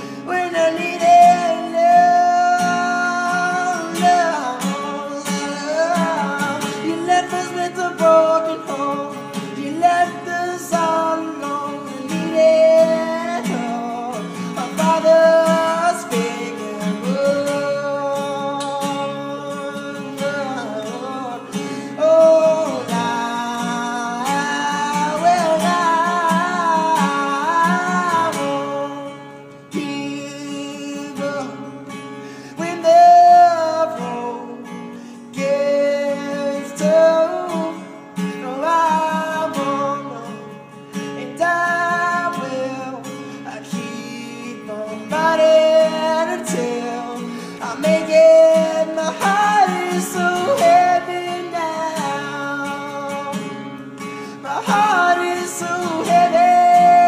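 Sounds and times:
person singing: 0.0s - 31.9s, 32.5s - 40.5s, 41.2s - 57.0s
acoustic guitar: 0.0s - 57.0s.

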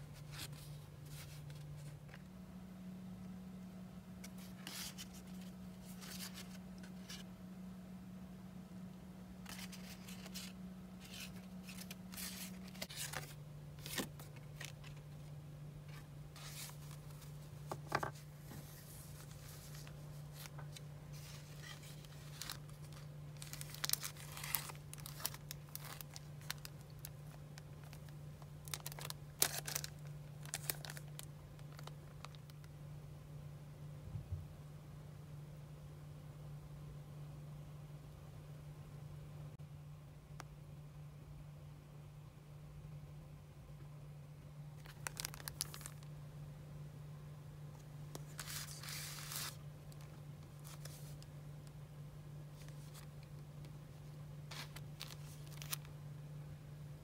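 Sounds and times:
paper rustling and crinkling: 0.0s - 2.2s, 4.2s - 7.3s, 9.4s - 32.5s, 44.8s - 46.1s, 47.8s - 51.3s, 52.5s - 55.9s
steady low hum: 0.0s - 57.0s.

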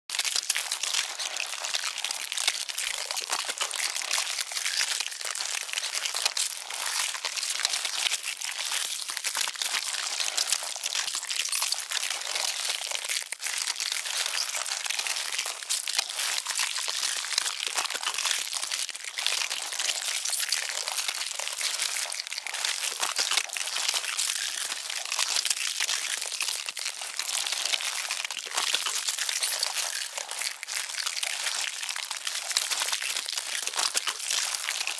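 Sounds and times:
ants crackling and crinkling: 0.1s - 34.9s.

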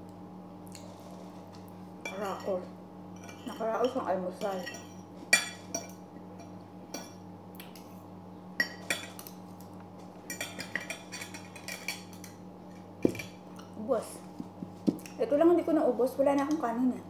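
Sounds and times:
steady low hum: 0.0s - 17.0s
cutlery clinking on ceramic plate: 10.3s - 12.4s.

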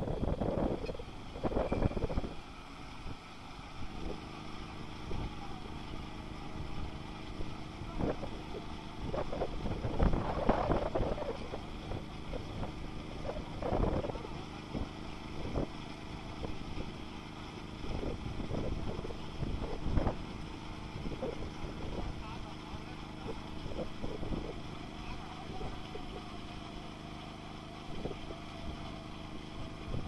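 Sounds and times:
wind noise on microphone: 0.0s - 2.4s, 6.6s - 15.8s, 17.8s - 22.2s, 23.2s - 24.6s, 29.6s - 30.0s.

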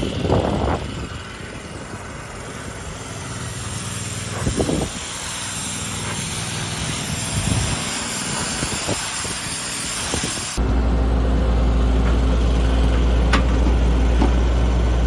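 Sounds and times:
pressure washer engine running: 0.0s - 15.0s
water jet hissing against bark: 1.2s - 10.6s.

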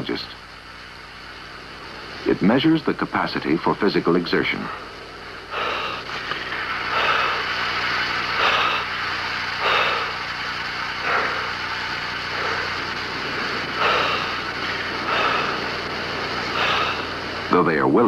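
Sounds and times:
steady low hum: 0.0s - 18.0s
person breathing hard: 4.8s - 17.5s.

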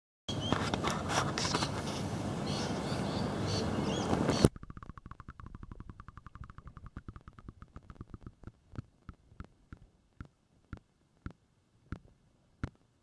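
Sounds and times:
bird chirps: 2.4s - 8.1s
faint underwater clicks: 4.2s - 12.8s.

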